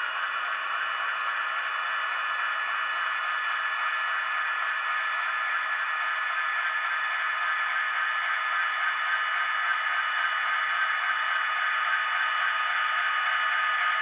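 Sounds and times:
model locomotive motors whining: 0:00.0 - 0:14.0.

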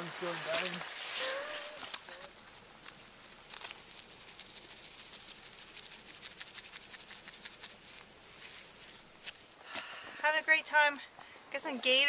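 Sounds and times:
grass crackling and rustling: 0:00.0 - 0:09.8
thin high squeaks: 0:01.2 - 0:05.4.

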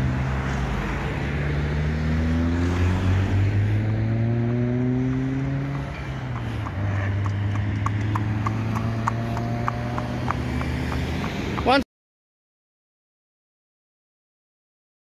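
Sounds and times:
vehicle engine humming: 0:00.0 - 0:11.8
horse hooves clopping on tarmac: 0:04.1 - 0:11.8.

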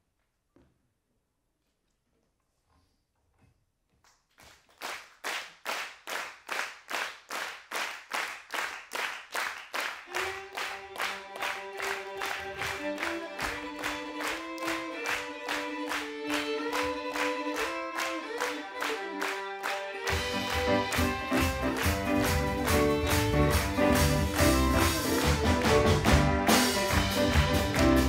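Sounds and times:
hand-clapping in a steady beat: 0:04.3 - 0:28.0
violin melody: 0:10.0 - 0:28.0.

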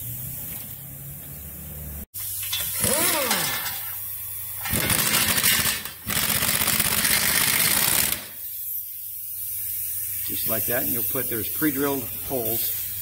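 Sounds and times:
impact wrench whine: 0:02.4 - 0:04.0, 0:04.6 - 0:08.4
impact wrench hammering: 0:04.6 - 0:08.4.

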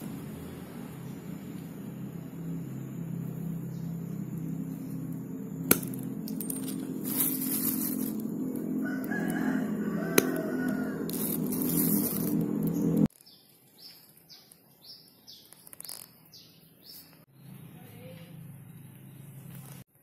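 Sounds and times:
rooster crowing: 0:04.2 - 0:13.1
pliers snapping nails: 0:05.7 - 0:08.2.

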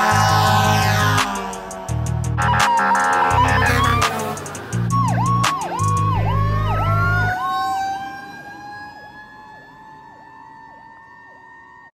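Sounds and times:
fire truck air horn: 0:00.0 - 0:01.7, 0:02.3 - 0:04.4
electronic siren whooping: 0:00.0 - 0:11.9
siren rising in pitch: 0:00.0 - 0:11.9.

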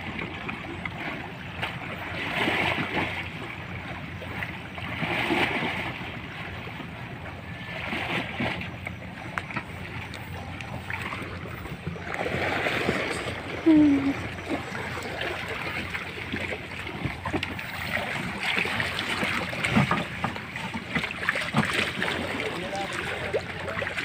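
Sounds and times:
steady low hum: 0:00.0 - 0:24.0
water sloshing against boat: 0:00.0 - 0:24.0.

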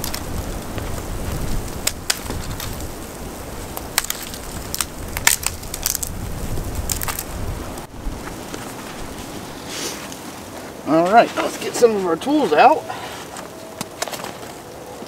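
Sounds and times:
wind rumble on microphone: 0:00.0 - 0:09.7
branches snapping: 0:00.0 - 0:11.5, 0:13.2 - 0:14.6.

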